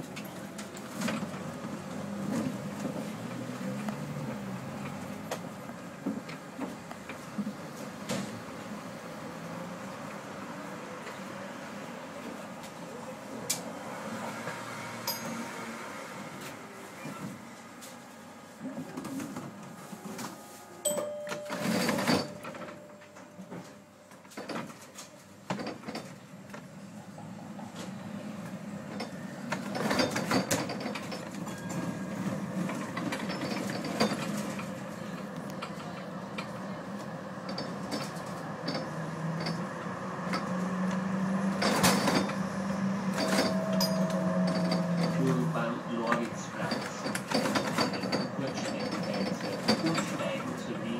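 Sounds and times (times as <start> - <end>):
tram running noise: 0.0 - 50.9
low motor hum: 39.0 - 45.9.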